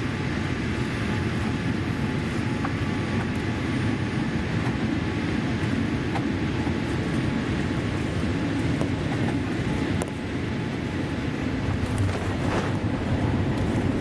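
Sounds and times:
airplane cabin rumble: 0:00.0 - 0:14.0.

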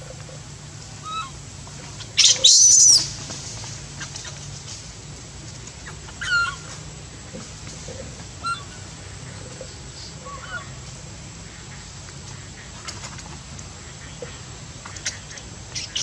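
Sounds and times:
infant monkey distress cries: 0:01.0 - 0:01.4, 0:05.9 - 0:06.7.

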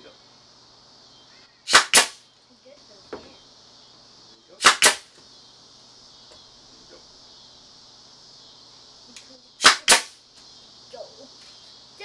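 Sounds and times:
nail gun shots: 0:01.7 - 0:02.2, 0:04.6 - 0:05.1, 0:09.6 - 0:10.2
faint knock: 0:03.1 - 0:03.4.

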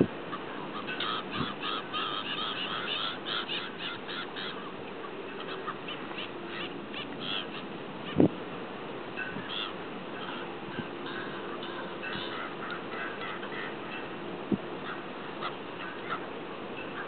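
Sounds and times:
gulls calling: 0:00.0 - 0:17.0.

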